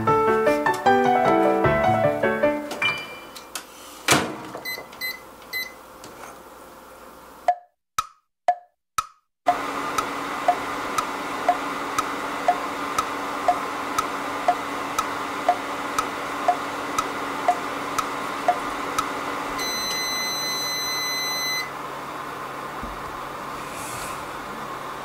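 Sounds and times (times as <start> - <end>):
microwave oven humming: 2.6 - 7.4, 9.5 - 25.0
microwave long beep: 4.6 - 5.8, 9.5 - 21.8
microwave ticking: 7.5 - 21.7.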